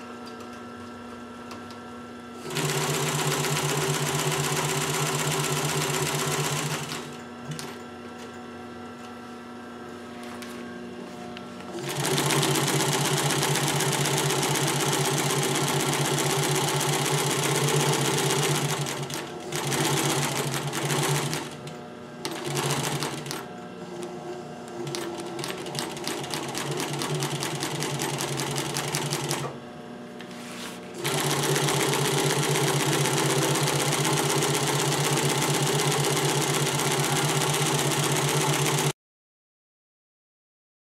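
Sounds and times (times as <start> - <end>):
sewing machine stitching: 2.4 - 7.8, 11.7 - 24.0, 24.7 - 29.6, 31.0 - 39.0.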